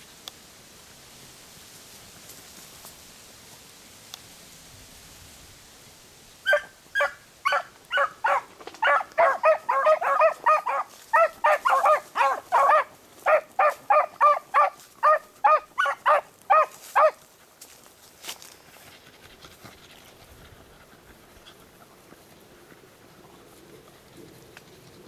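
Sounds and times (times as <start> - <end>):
dogs baying: 6.5 - 17.2.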